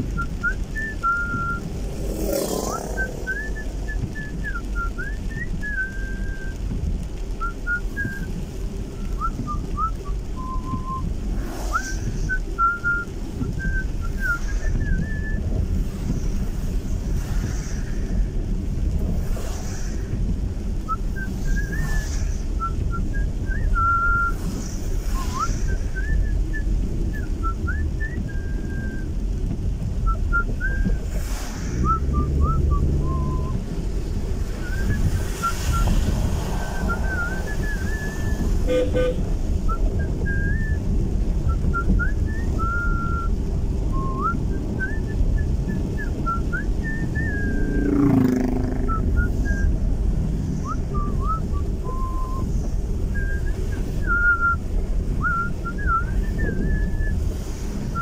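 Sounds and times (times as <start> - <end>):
car engine rumble: 0.0 - 58.0
tyres on wet road: 0.0 - 58.0
person whistling a tune: 0.2 - 1.7, 2.6 - 6.6, 7.4 - 11.1, 11.7 - 15.4, 20.9 - 29.2, 30.0 - 31.0, 31.8 - 33.6, 34.5 - 36.0, 36.6 - 40.8, 41.4 - 47.9, 48.8 - 49.8, 50.6 - 54.6, 55.2 - 57.3.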